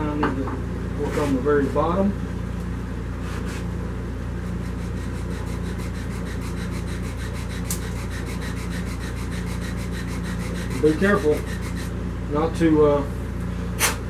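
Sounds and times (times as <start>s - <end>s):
lathe hum: 4.2s - 12.5s
wood rubbing on sandpaper: 4.4s - 12.0s.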